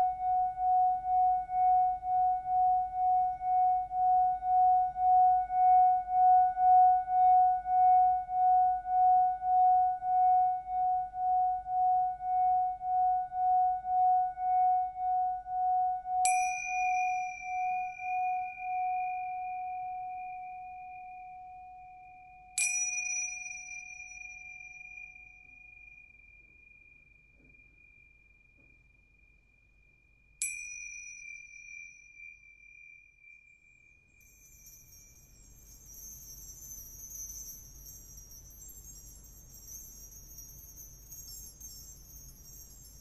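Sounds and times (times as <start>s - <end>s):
singing bowl ringing: 0.0s - 28.0s, 30.4s - 43.0s
high bell-like tone struck: 15.8s - 28.0s, 30.4s - 43.0s.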